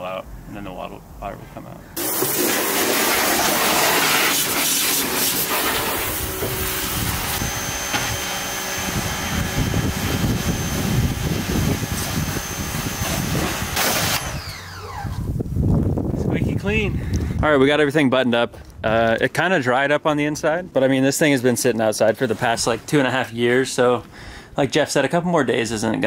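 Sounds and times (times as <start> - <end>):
pressure washer spray hissing: 2.0 - 14.4
pump humming: 2.0 - 15.3.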